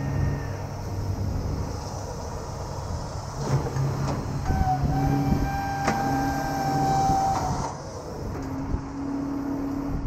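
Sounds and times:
truck engine running: 0:00.0 - 0:10.0
hydraulic winch whine: 0:03.4 - 0:08.8.

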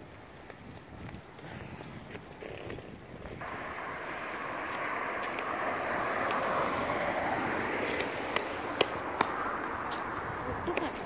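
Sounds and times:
passing vehicle rushing: 0:03.4 - 0:11.0.

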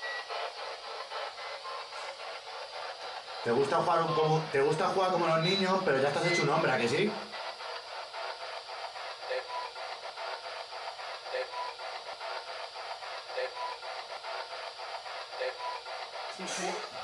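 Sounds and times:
pulsing choppy hiss: 0:00.0 - 0:17.0.

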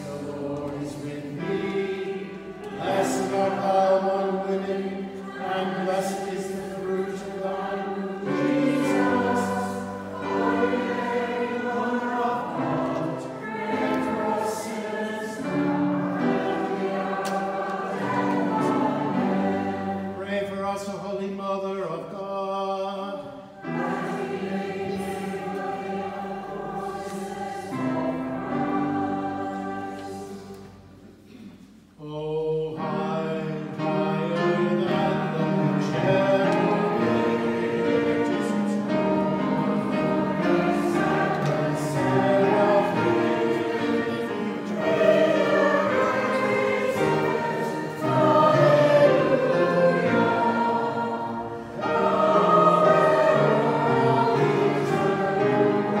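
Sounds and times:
group singing a hymn: 0:00.0 - 0:56.0.

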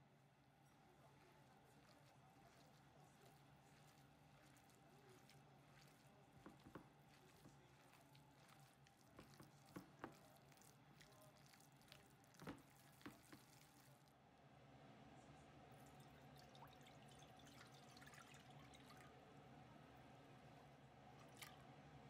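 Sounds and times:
hands kneading wet mixture: 0:00.7 - 0:14.2, 0:15.7 - 0:21.8
liquid poured into pot: 0:15.8 - 0:19.3.

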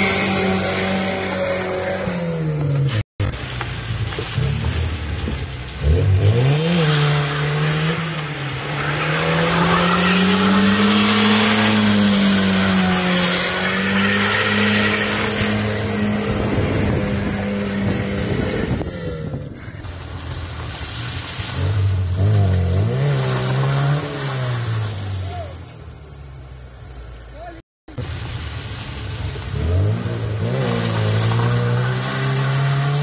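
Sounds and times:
car engine revving: 0:04.2 - 0:18.9.

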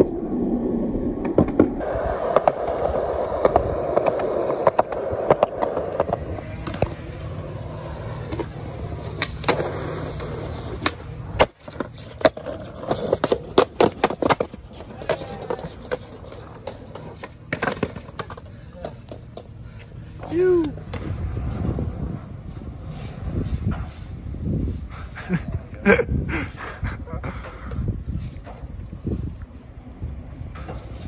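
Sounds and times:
skateboard wheels rolling on concrete: 0:00.0 - 0:31.0
skateboard clacking on landings: 0:01.3 - 0:21.2.

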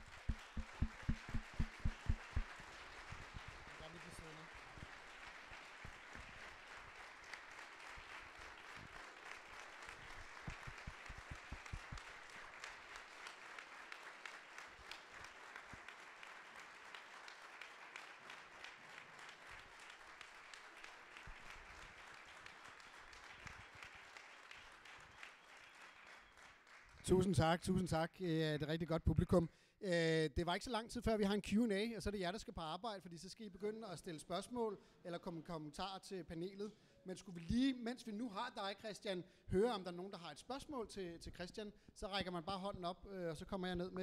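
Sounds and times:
low knocks: 0:00.0 - 0:02.5
audience applauding: 0:00.0 - 0:27.3.

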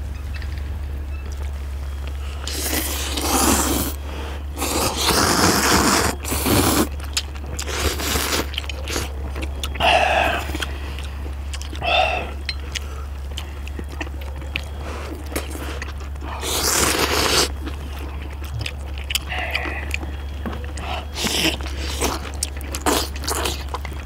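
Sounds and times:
steady low hum: 0:00.0 - 0:24.0
chewing: 0:02.0 - 0:24.0
people slurping noodles: 0:02.4 - 0:07.0, 0:07.6 - 0:09.1, 0:09.7 - 0:10.8, 0:14.7 - 0:17.6.

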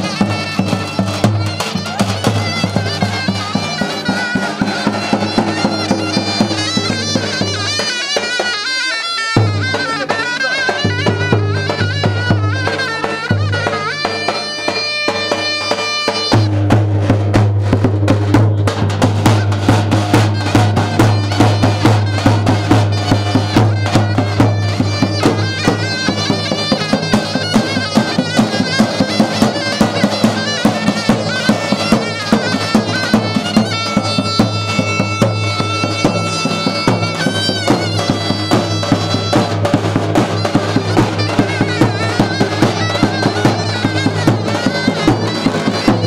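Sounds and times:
shrill reed pipe melody: 0:00.0 - 0:46.0
steady drum beat: 0:00.0 - 0:46.0.

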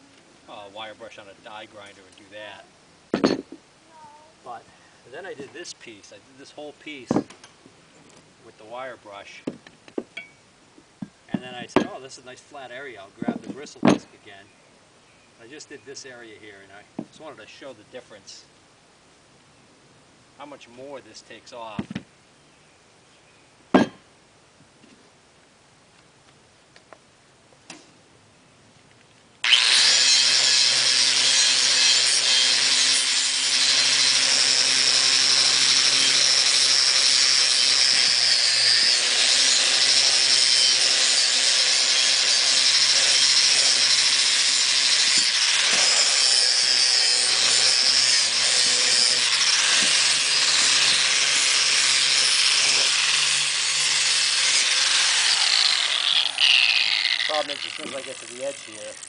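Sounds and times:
angle grinder whining on metal: 0:29.4 - 0:59.0.

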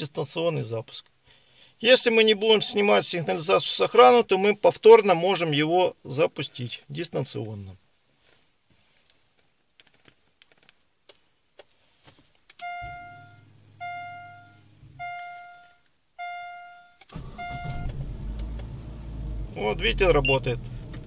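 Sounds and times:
key fob beeps: 0:12.6 - 0:17.9
car engine starting and idling: 0:12.6 - 0:21.0.

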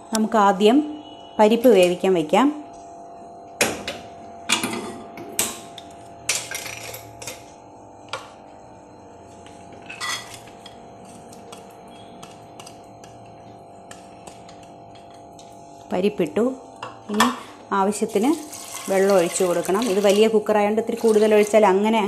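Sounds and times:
utensils and bowl clattering: 0:06.3 - 0:07.5, 0:09.8 - 0:15.6
dry lentils pouring into pot: 0:18.3 - 0:20.0.

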